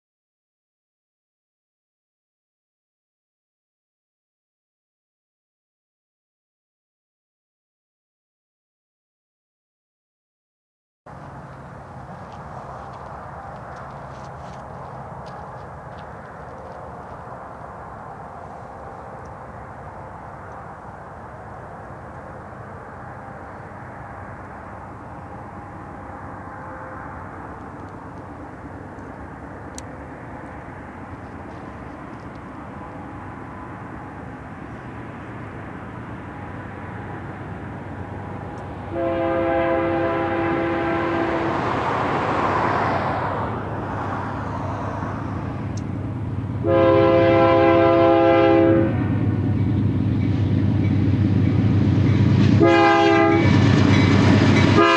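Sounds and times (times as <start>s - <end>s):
diesel locomotives rumbling: 11.1s - 54.9s
locomotive air horn blasts: 38.9s - 41.7s, 46.6s - 49.1s, 52.6s - 53.6s, 54.6s - 54.9s.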